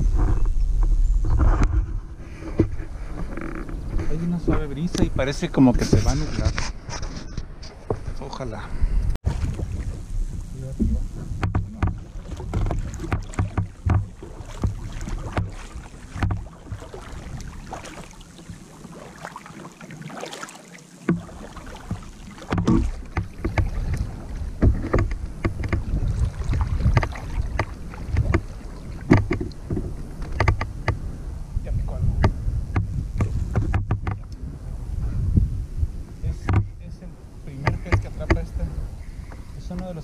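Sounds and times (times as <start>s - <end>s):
wind rumble on microphone: 0.0s - 19.2s, 21.1s - 40.0s
paddle water splashing and dripping: 9.2s - 31.5s, 32.2s - 34.4s, 37.5s - 39.8s
small knocks and taps: 10.8s - 16.8s, 29.1s - 31.0s, 32.2s - 34.3s, 36.4s - 36.7s.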